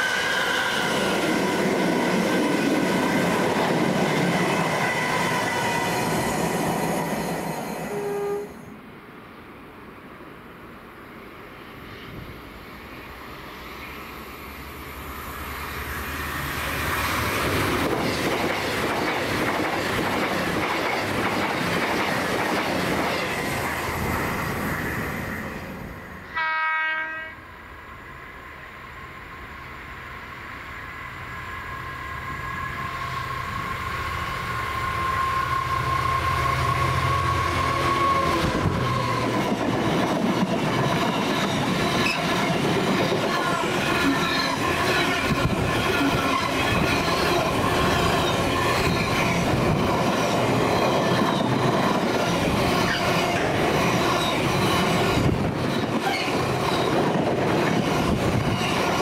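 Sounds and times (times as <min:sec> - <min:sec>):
diesel locomotive whine: 0:00.0 - 0:59.0
train rail and wheel noise: 0:00.0 - 0:59.0
train horn blast: 0:07.9 - 0:08.7, 0:26.3 - 0:27.4.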